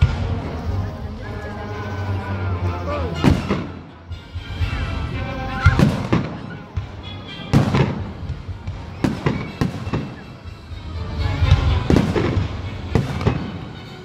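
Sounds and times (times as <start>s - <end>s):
music playing: 0.0s - 14.0s
firework shells booming: 5.7s - 10.4s.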